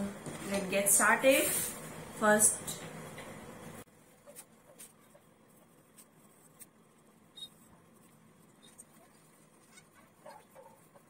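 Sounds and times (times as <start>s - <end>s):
pencil scratching on paper: 7.4s - 11.0s.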